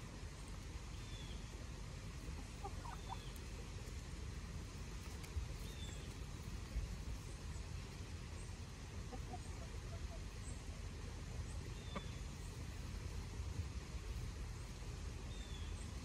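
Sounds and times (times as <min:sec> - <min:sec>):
chickens clucking: 0:02.1 - 0:04.1, 0:05.0 - 0:10.8, 0:11.4 - 0:13.0.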